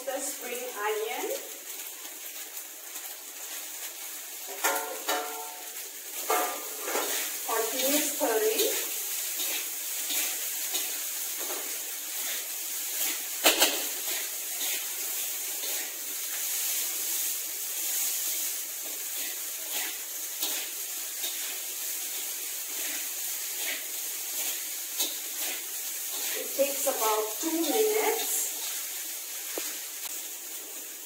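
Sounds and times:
rice sizzling in a wok: 0:00.0 - 0:31.0
metal spatula scraping a pan: 0:04.5 - 0:17.2, 0:17.8 - 0:28.8.

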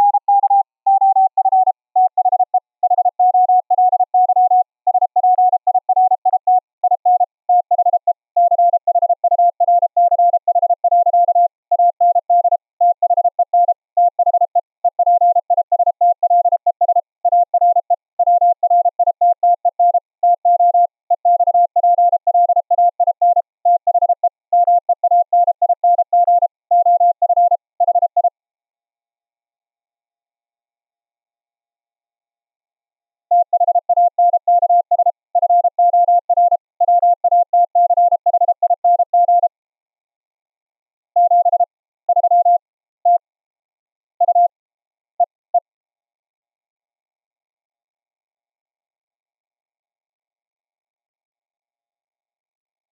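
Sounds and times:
morse code sine tone: 0:00.0 - 0:28.3, 0:33.3 - 0:39.5, 0:41.2 - 0:43.2, 0:44.2 - 0:44.5.

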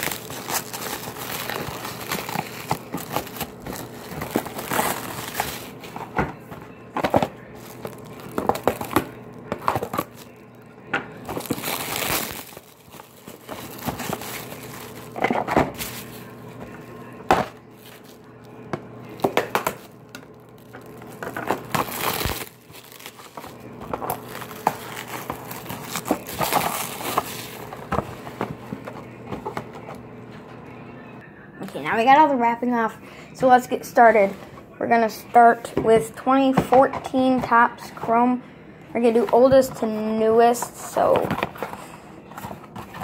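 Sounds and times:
plastic shrink wrap crinkling: 0:00.0 - 0:29.9.

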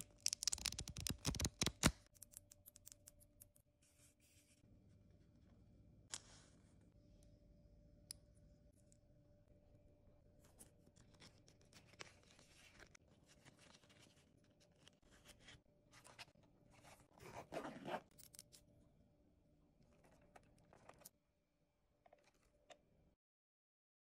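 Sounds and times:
fingers handling plastic pouch: 0:00.2 - 0:03.1
zipper pull: 0:17.2 - 0:18.3.

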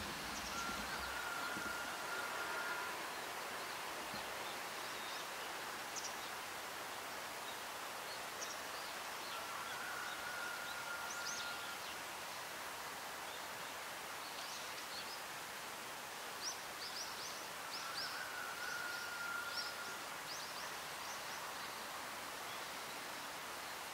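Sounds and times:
distant birds chirping: 0:00.0 - 0:06.4
outdoor background hiss: 0:00.0 - 0:23.9
faint high whistle: 0:00.5 - 0:03.0.

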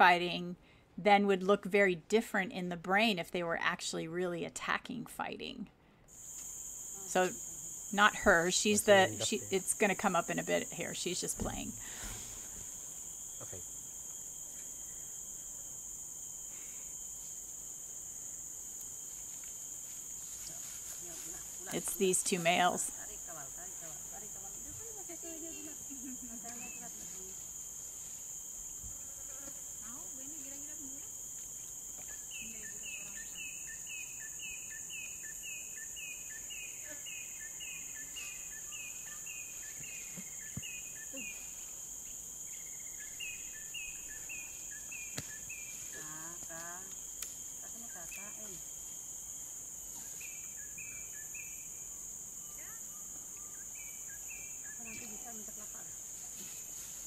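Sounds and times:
insect chorus drone: 0:05.8 - 0:57.0.

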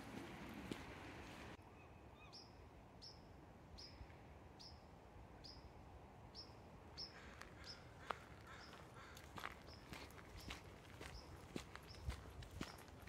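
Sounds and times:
small bird calling: 0:06.3 - 0:12.8.

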